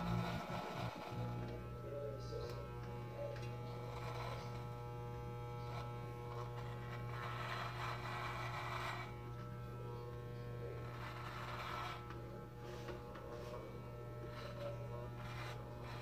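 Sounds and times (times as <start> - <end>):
electric hair clippers buzzing: 0.0 - 16.0
clipper blades rasping through hair: 2.5 - 9.5, 10.8 - 12.2, 14.2 - 16.0.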